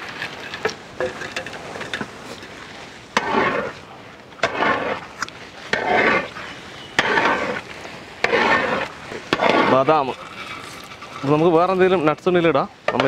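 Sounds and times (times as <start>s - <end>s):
metal ladle scraping a pot: 0.0s - 11.8s.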